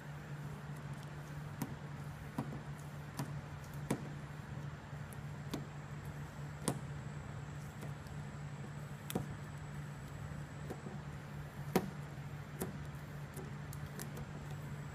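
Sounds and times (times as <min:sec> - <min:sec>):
steady low hum: 0:00.0 - 0:14.9
sharp ticks of peeling stencil: 0:00.7 - 0:04.0, 0:11.6 - 0:14.8.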